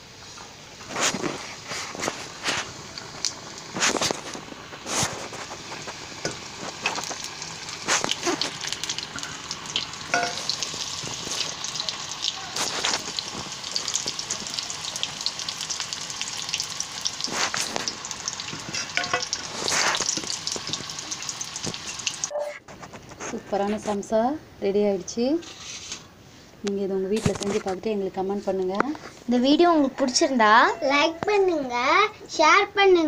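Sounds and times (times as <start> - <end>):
food deep-frying in hot oil: 0.0 - 22.3.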